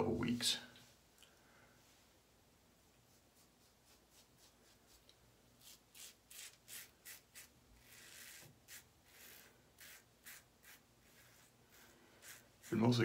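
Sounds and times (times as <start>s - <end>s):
razor scraping stubble: 3.6s - 13.0s.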